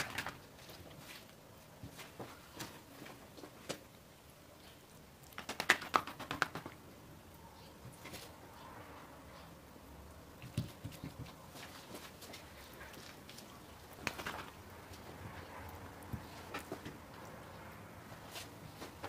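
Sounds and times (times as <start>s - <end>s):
sticky dough clicks and smacks: 5.2s - 6.8s, 10.3s - 17.4s.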